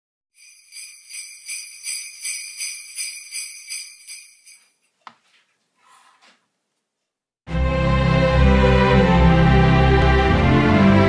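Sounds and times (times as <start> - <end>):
sleigh bells shaken: 0.4 - 4.8.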